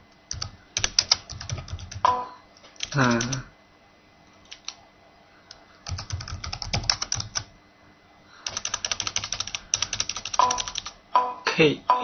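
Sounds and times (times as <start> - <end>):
computer keyboard key clicks: 8.5 - 10.9.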